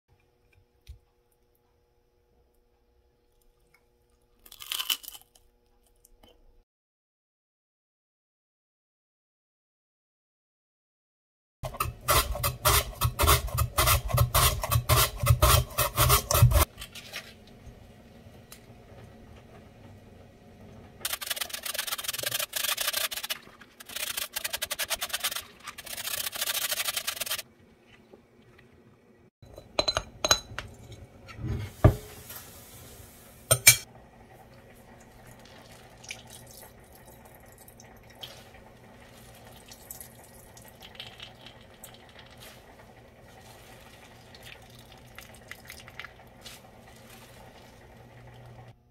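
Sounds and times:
potato scraping on mandoline slicer: 11.6 - 16.7, 21.1 - 27.4
water trickling into bowl: 34.5 - 48.6.

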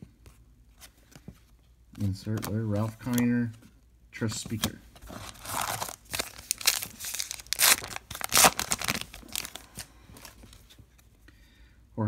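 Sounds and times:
wrapper tearing and crinkling: 5.1 - 9.9.

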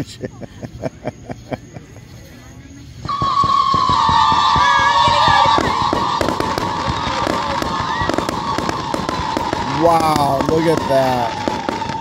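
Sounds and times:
fireworks whistling: 2.4 - 12.0
fireworks crackling pops: 3.0 - 12.0.

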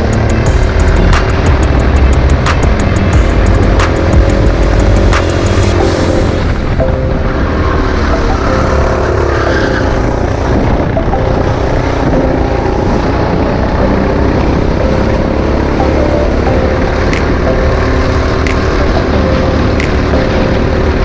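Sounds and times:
go-kart engine running: 0.0 - 21.0.

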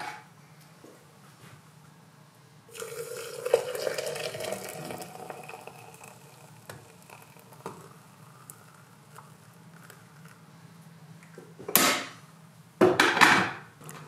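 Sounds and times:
water pouring into glass jug: 2.7 - 8.8.

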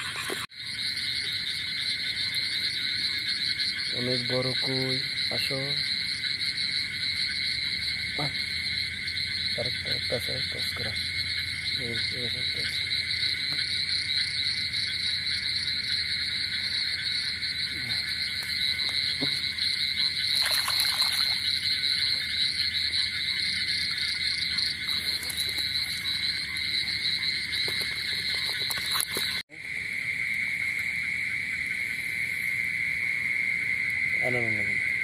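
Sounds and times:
frogs and insects trilling: 0.0 - 35.0
hands splashing water: 20.3 - 21.6, 27.7 - 29.4.

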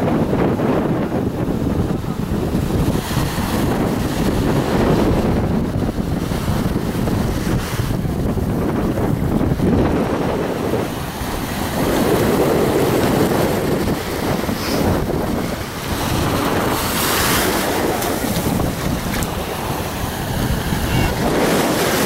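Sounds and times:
wind buffeting microphone: 0.0 - 22.0
small waves washing on sand: 0.2 - 22.0.

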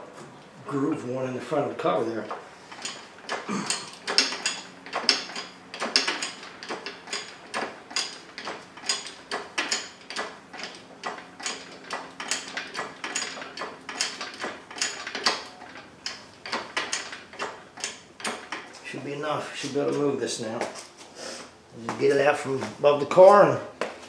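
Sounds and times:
lifting gear clicking: 2.2 - 18.8.

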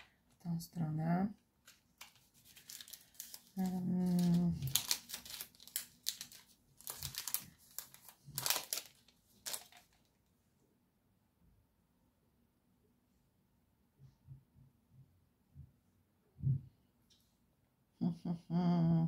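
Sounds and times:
plastic sleeves crinkling: 1.6 - 10.2.

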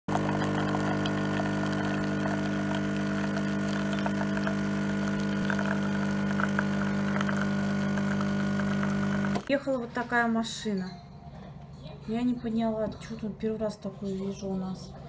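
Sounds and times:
coffee machine pump humming: 0.1 - 9.5.

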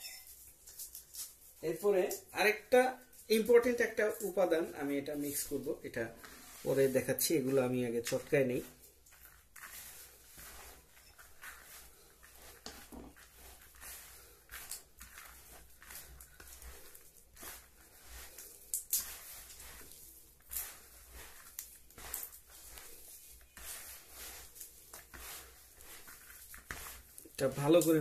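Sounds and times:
hands squishing bait: 11.4 - 28.0.

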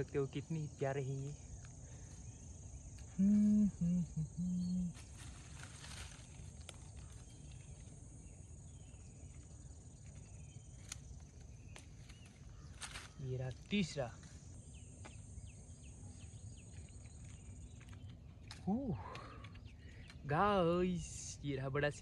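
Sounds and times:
high insect drone: 0.0 - 22.0
short humming tones: 3.0 - 5.2.

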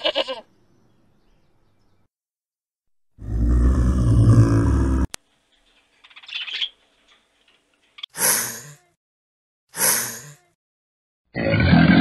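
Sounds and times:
snow leopard growling: 3.2 - 5.2
short breathy hisses: 8.2 - 8.8, 9.8 - 10.5.

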